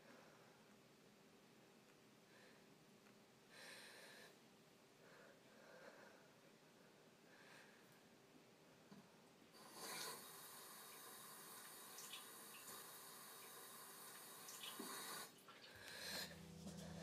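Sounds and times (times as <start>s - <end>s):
faucet water running into sink: 9.6s - 15.4s.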